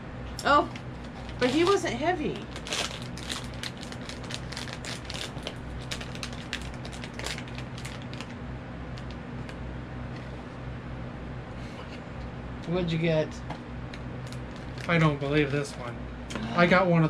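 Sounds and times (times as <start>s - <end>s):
steady low hum: 0.0s - 17.0s
plastic bag crinkling and tearing: 1.0s - 1.8s, 2.4s - 8.3s, 14.2s - 15.1s.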